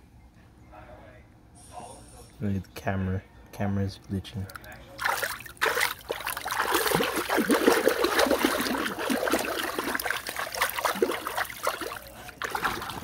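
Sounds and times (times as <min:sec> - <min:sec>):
water splashing in pool: 0:05.0 - 0:13.0.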